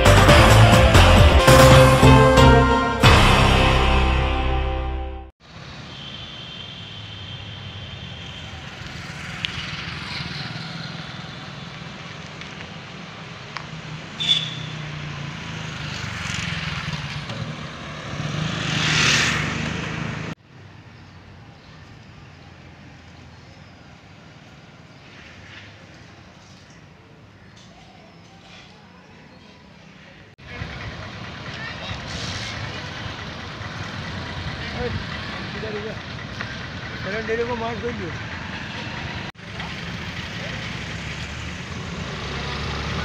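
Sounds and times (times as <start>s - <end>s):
faint street hum: 5.4s - 43.0s
motorbikes passing: 6.8s - 20.4s, 30.4s - 43.0s.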